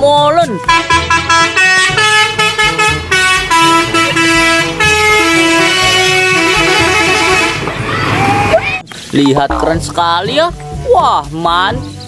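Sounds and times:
musical vehicle horn: 0.5 - 7.7.

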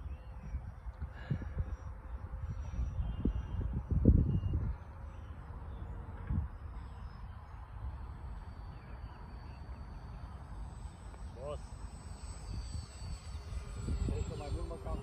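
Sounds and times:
wind rumbling on microphone: 0.0 - 8.9, 12.0 - 15.0
faint bird chirps: 0.0 - 15.0
faint high whine of model jet: 0.0 - 15.0.

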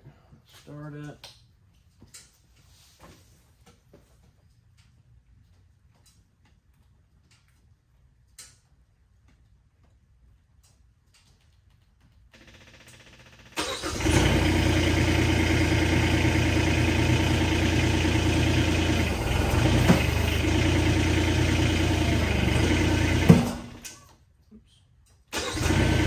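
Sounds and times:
loader engine cranking and idling: 12.8 - 24.2, 25.2 - 26.0.

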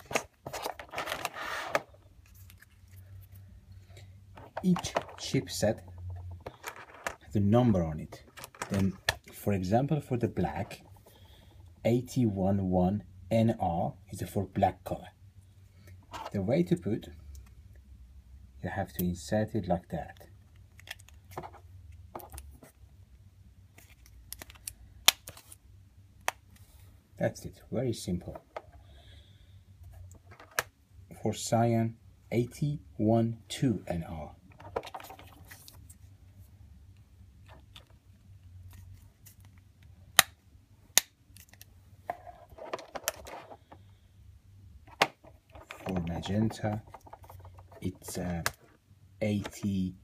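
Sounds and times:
plastic handling: 0.0 - 3.2, 4.3 - 7.4, 8.0 - 9.4, 34.5 - 36.0, 41.3 - 43.9, 44.9 - 49.7.

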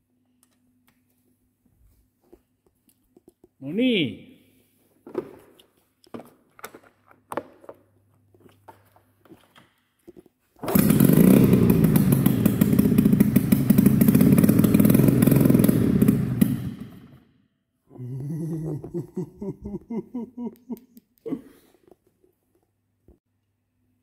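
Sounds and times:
snowmobile engine running rough: 10.7 - 17.1.

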